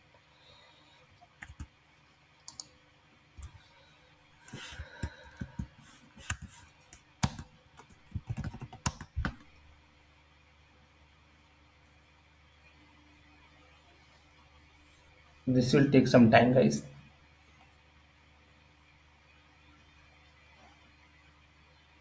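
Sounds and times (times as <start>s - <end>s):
computer keyboard typing: 1.4s - 1.7s, 2.5s - 2.7s, 3.4s - 3.6s, 5.0s - 9.5s.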